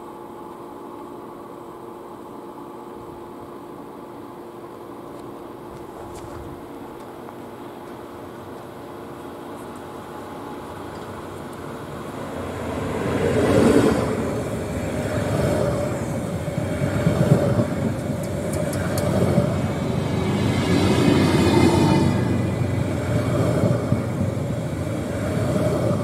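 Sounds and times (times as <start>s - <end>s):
electric train rumbling: 0.0s - 26.0s
carriages humming: 6.6s - 26.0s.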